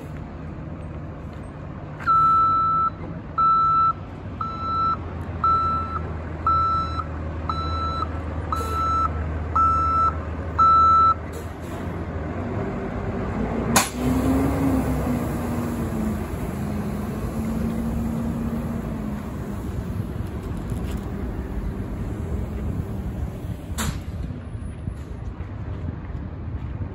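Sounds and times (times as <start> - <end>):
diesel engine running: 0.0 - 26.9
reversing alarm beeping: 2.0 - 11.2.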